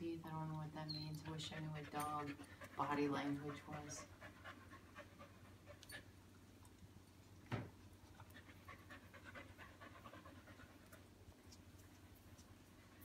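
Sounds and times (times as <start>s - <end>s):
dog panting: 0.9s - 6.1s, 8.0s - 13.0s.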